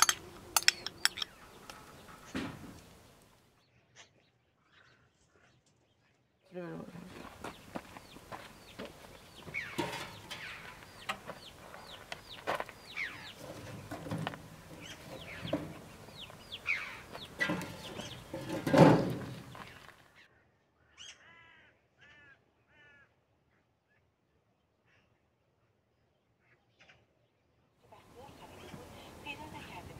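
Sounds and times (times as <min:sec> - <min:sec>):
firewood clattering against metal oven: 0:00.0 - 0:03.2, 0:07.6 - 0:19.9
chickens calling: 0:00.0 - 0:03.3, 0:06.6 - 0:19.9, 0:28.0 - 0:29.9
bird chirps: 0:07.1 - 0:19.9.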